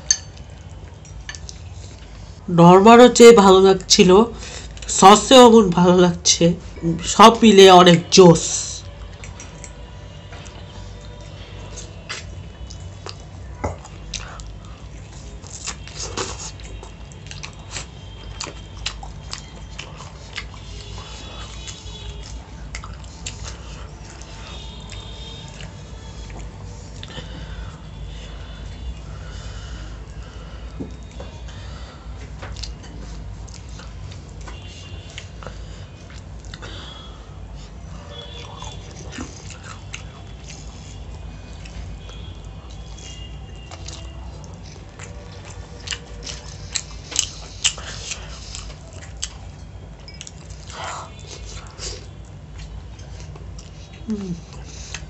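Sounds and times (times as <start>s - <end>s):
fried chicken being chewed: 0.0s - 2.4s, 8.8s - 55.0s.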